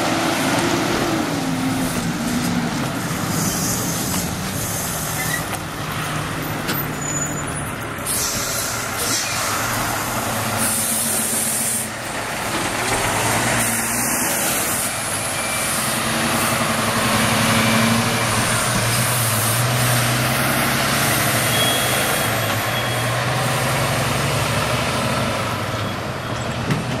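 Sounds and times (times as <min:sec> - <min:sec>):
truck diesel engine accelerating: 0:00.0 - 0:27.0
air brake hisses: 0:03.3 - 0:05.5, 0:08.0 - 0:09.7, 0:10.6 - 0:11.9.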